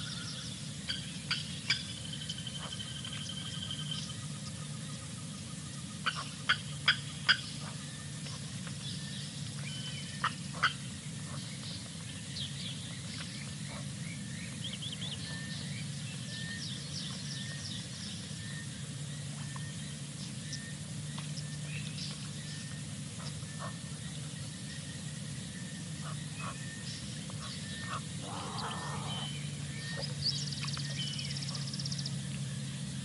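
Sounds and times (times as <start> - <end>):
steady low hum: 0.0 - 33.0
high animal chirps and calls: 27.8 - 29.4.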